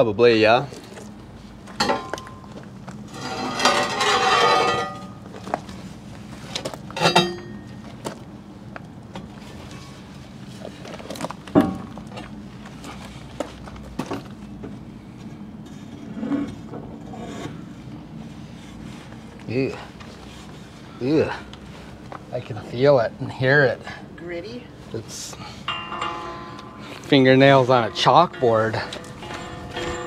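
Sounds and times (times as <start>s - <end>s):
metal grating: 3.0s - 5.2s, 25.6s - 30.0s
metal clunks and scrapes: 3.0s - 5.6s, 15.6s - 17.6s, 25.6s - 30.0s.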